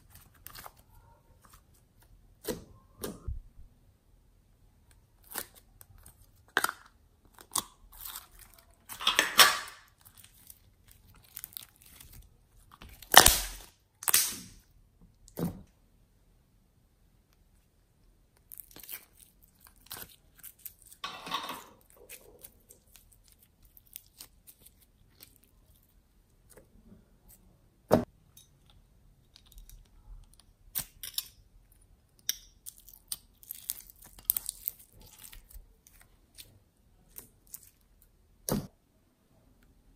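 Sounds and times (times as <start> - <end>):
slime squelching and clicking: 28.7 - 36.5.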